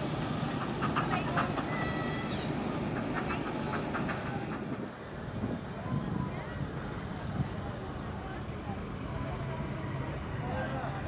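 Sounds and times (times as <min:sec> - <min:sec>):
steam hiss: 0:00.0 - 0:04.9
train clicks: 0:00.0 - 0:05.0
voices: 0:00.1 - 0:05.0.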